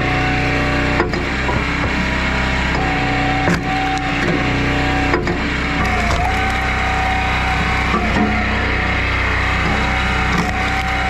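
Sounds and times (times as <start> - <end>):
engine running steadily: 0.0 - 11.0
wood cracking: 5.7 - 8.6, 9.4 - 11.0.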